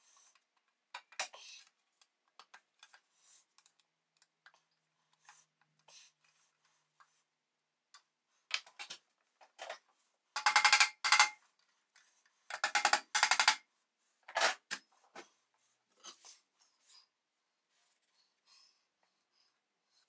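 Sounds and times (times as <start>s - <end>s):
fast clicking bursts: 12.5s - 13.6s.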